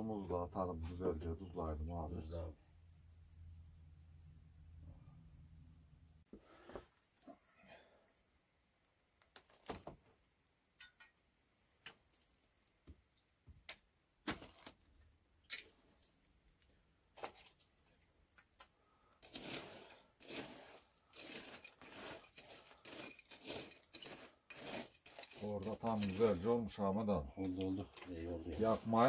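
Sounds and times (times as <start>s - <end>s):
fire tongs clinking: 10.7s - 11.2s
coals scraping and crunching: 14.3s - 17.9s, 19.1s - 26.8s, 27.4s - 29.0s.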